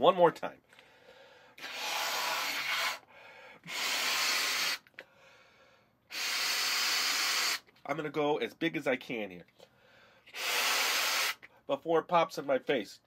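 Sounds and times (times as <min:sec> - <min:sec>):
person blowing up balloon: 0:01.6 - 0:05.0, 0:06.1 - 0:07.7, 0:10.3 - 0:11.5.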